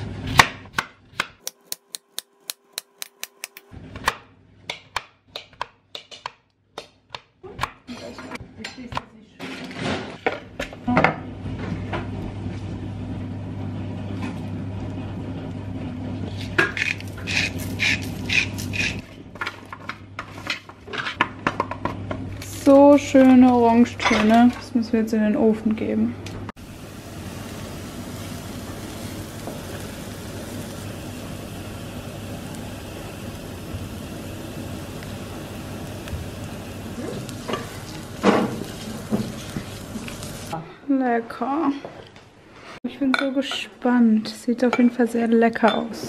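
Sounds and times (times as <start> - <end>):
aromatics sizzling in oil: 16.2 - 19.1, 26.5 - 40.6
seasoning scratching onto vegetables: 16.3 - 19.1, 32.2 - 40.6.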